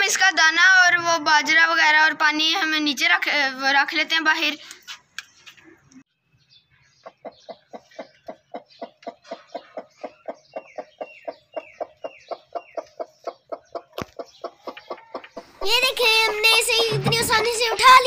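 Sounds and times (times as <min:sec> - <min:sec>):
hen clucking: 0:07.0 - 0:18.0.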